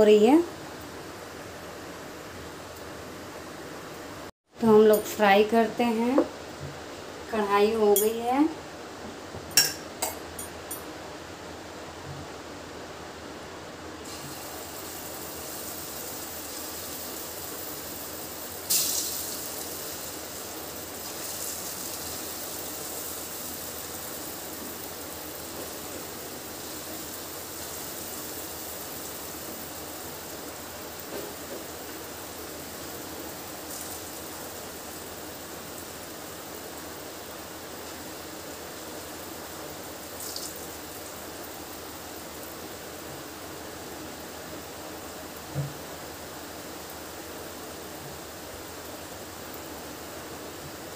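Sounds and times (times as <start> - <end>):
batter sizzling in hot oil: 14.0 - 43.4.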